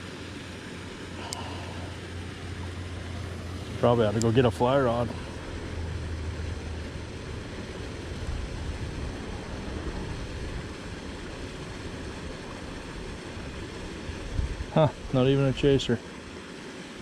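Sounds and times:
wind buffeting microphone: 0:13.4 - 0:14.8.

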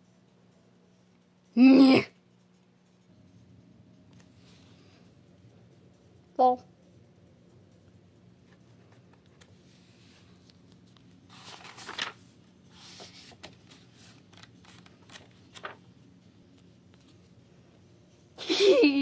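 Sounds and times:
notebook pages rustling: 0:08.5 - 0:15.9.

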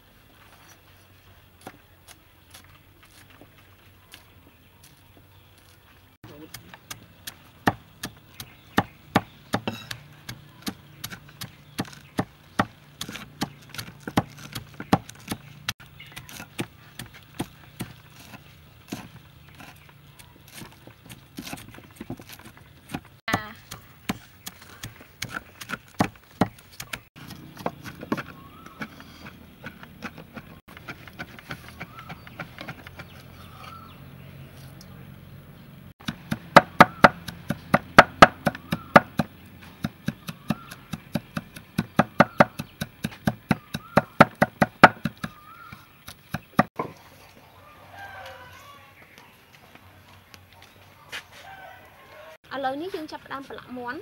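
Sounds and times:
cleaver chopping on wooden block: 0:06.5 - 0:19.8, 0:20.5 - 0:33.2, 0:36.0 - 0:46.9.

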